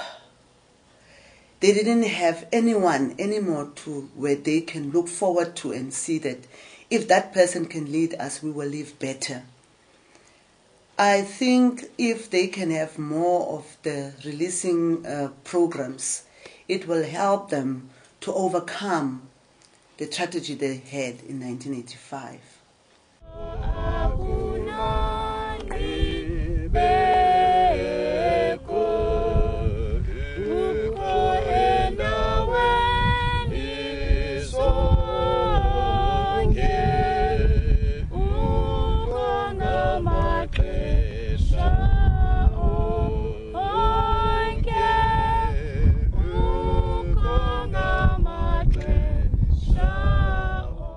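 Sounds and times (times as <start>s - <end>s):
low musical accompaniment: 23.2s - 29.8s
group of voices singing: 23.2s - 50.9s.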